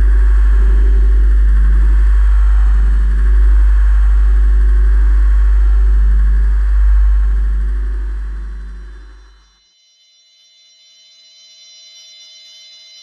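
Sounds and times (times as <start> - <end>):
deep bass drone: 0.0 - 9.6
faint pulsing tone: 0.0 - 9.7.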